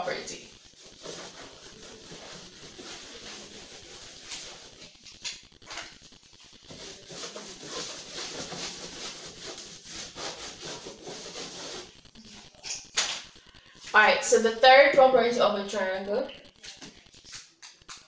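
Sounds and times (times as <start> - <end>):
board being wiped by hand: 0.8 - 4.9, 6.7 - 11.9.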